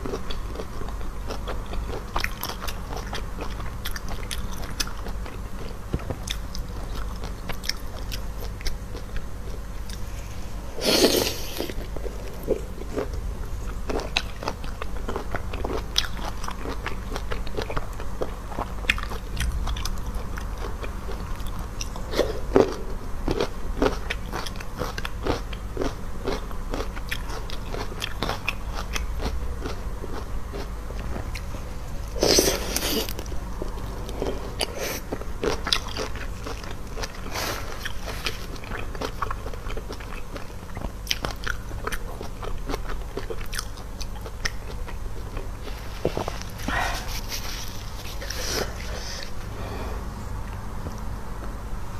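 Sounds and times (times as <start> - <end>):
person chewing and crunching food: 0.0 - 51.6
low hum: 44.8 - 51.9.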